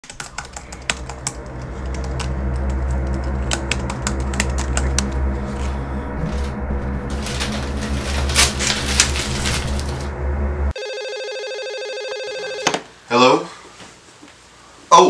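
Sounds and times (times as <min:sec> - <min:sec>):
laptop keyboard typing: 0:00.0 - 0:01.3
steady low hum: 0:00.0 - 0:13.1.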